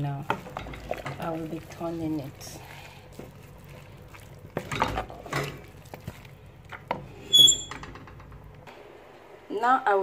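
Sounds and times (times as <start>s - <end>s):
spoon stirring thick soup: 0.1s - 7.2s.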